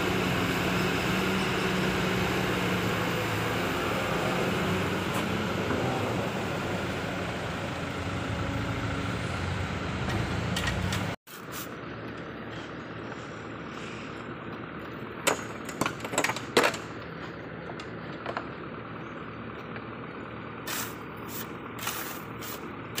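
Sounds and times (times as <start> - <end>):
metal shovel scraping sand: 11.3 - 11.8, 20.7 - 23.0.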